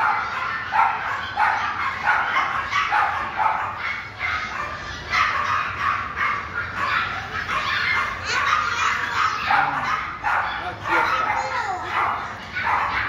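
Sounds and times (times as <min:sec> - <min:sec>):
puppies yapping: 0:00.0 - 0:13.0.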